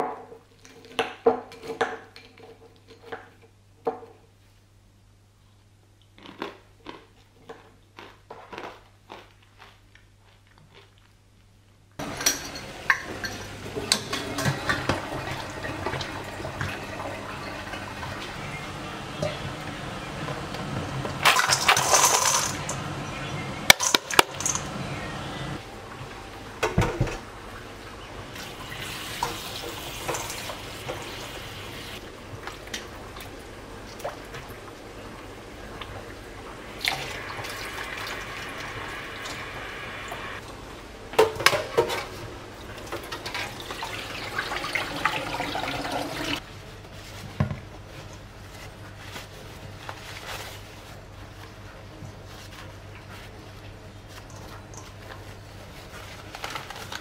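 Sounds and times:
kitchen clicks and knocks: 12.0 - 16.0, 23.7 - 24.7.

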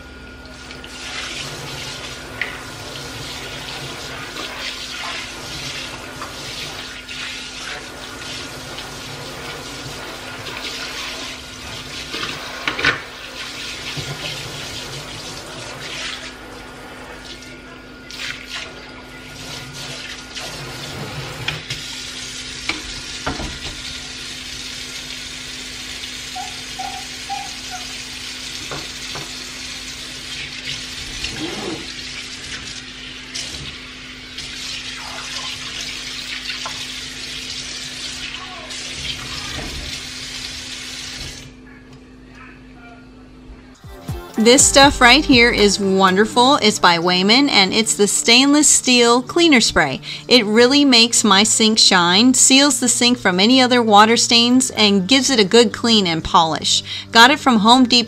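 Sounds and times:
faucet water running into sink: 0.4 - 41.5.

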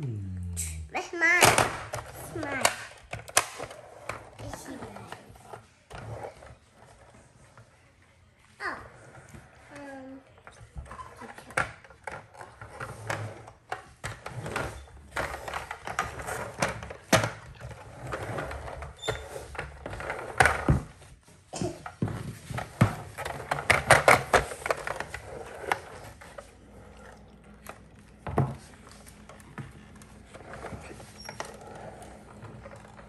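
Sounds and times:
plastic toy car rattling on wood: 21.8 - 26.5.

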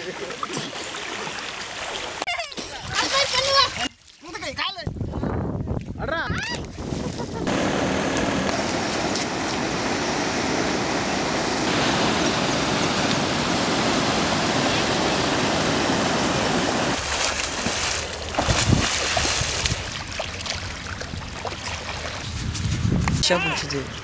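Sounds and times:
swimmer splashing: 0.0 - 2.2, 7.5 - 22.2
water rushing over rapids: 7.5 - 19.9.

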